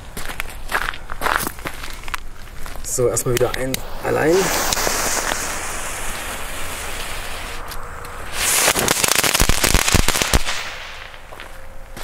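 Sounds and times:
firework fuse hissing: 2.8s - 11.3s
firework crackling cracks: 2.8s - 11.4s.

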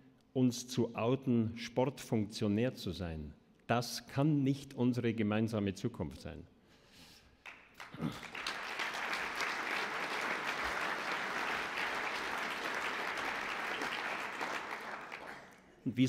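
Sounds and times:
audience applause: 7.4s - 15.7s.

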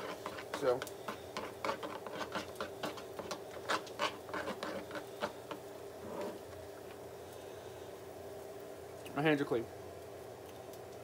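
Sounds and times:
spoon stirring sauce in bowl: 0.0s - 5.6s.

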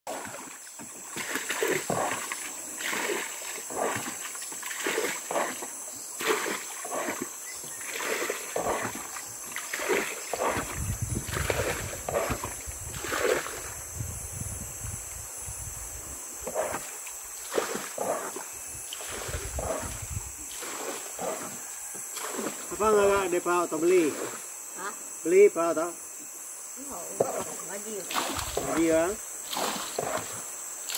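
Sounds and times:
water splashing from bailing: 0.1s - 13.7s, 17.4s - 23.2s, 27.3s - 30.9s
wind rumble on microphone: 10.4s - 16.2s, 18.6s - 20.5s.

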